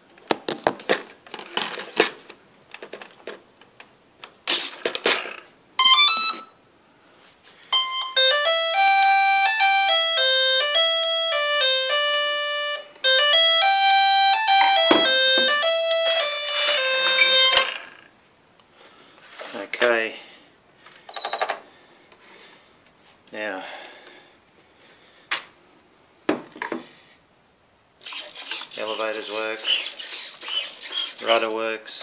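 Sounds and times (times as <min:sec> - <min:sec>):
electronic beeping tune: 0:05.8 - 0:06.6, 0:07.7 - 0:17.6.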